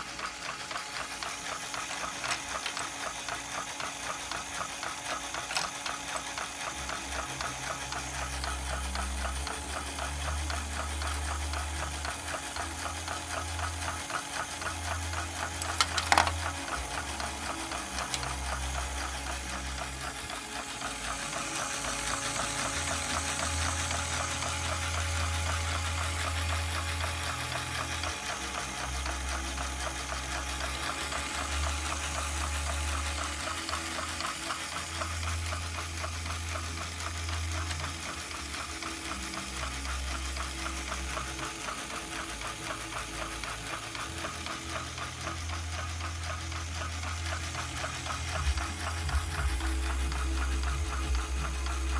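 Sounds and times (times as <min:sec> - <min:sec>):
plastic mechanism clacks: 0:00.0 - 0:07.5, 0:13.9 - 0:26.4
whirring rattle of plastic gears: 0:00.0 - 0:51.9.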